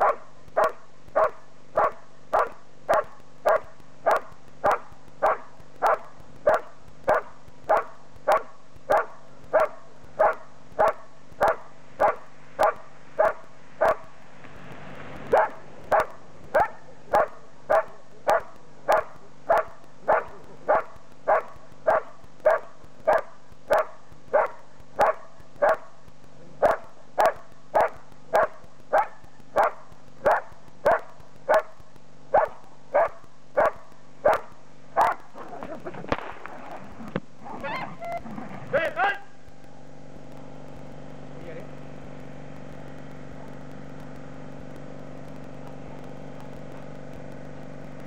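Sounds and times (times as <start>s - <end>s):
dog barking: 0.0s - 14.1s, 15.3s - 25.9s, 26.6s - 35.3s.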